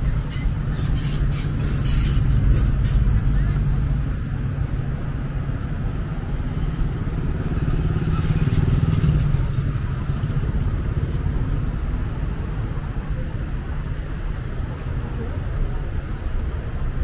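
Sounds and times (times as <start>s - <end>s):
engine rumble: 0.0s - 17.0s.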